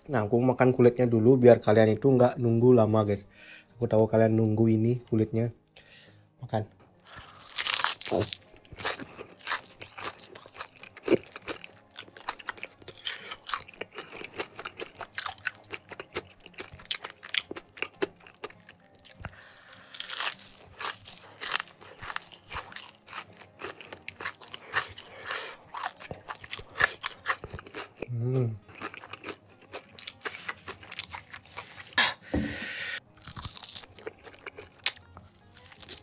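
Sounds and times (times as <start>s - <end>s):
crunchy chewing: 7.0s - 32.0s, 33.0s - 36.0s.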